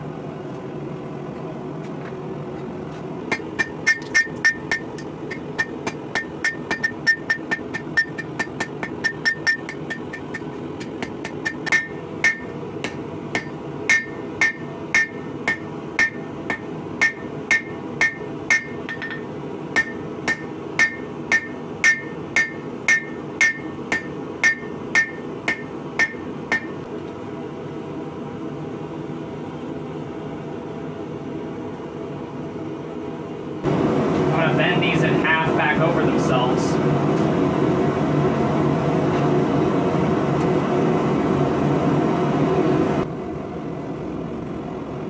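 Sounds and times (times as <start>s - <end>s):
low hum: 0.0s - 45.0s
hammer ringing on anvil: 3.3s - 26.8s.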